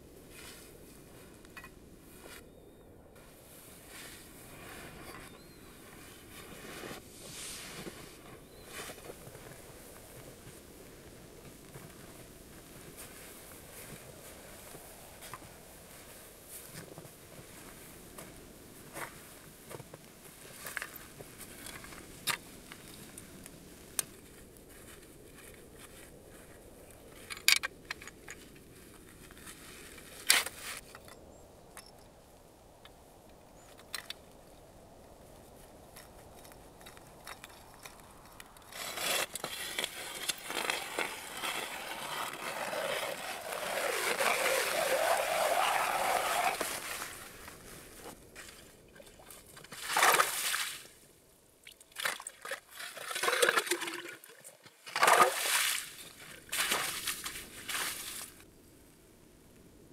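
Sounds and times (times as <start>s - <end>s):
auger blades grinding through ice: 38.6s - 47.2s.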